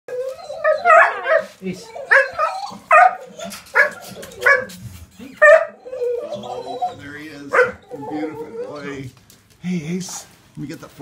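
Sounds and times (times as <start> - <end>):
dogs barking sharply: 2.1 - 4.8, 7.5 - 7.8.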